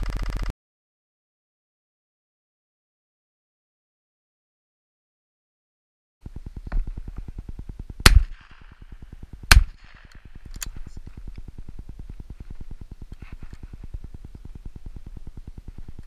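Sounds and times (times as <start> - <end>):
low rumble: 6.2 - 16.0
shotgun shots: 8.0 - 10.8.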